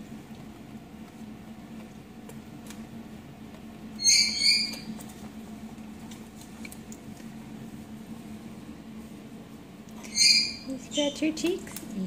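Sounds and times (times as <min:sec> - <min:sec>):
parrot two-note squeak: 0:10.1 - 0:10.7.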